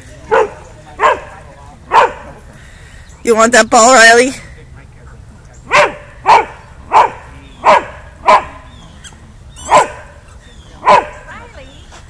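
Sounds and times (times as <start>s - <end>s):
dog barking loudly: 0.3s - 2.4s, 5.7s - 8.7s, 9.6s - 10.2s, 10.8s - 11.4s.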